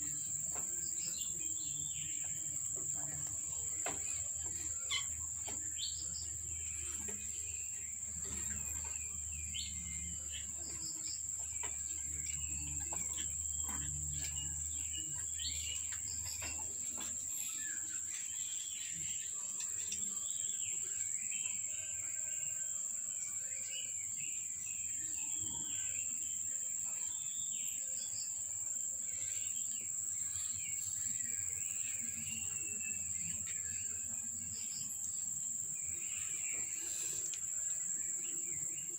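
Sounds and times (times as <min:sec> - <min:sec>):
small birds chirping: 0:00.0 - 0:21.8, 0:23.4 - 0:38.9
high insect drone: 0:00.0 - 0:38.9.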